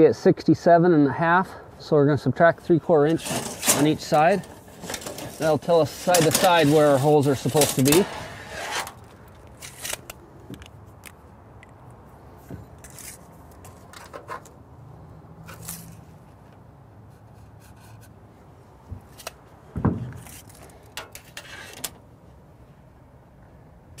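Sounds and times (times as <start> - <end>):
tape measure clicks and scrapes: 3.2 - 10.2, 12.8 - 14.5, 15.4 - 16.0.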